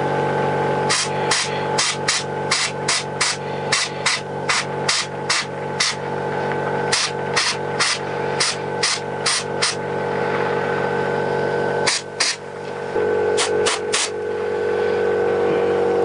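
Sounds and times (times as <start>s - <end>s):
air compressor humming: 0.0s - 16.0s
compressed air blasts: 0.9s - 6.1s, 6.9s - 10.4s, 11.8s - 12.5s, 13.4s - 14.2s.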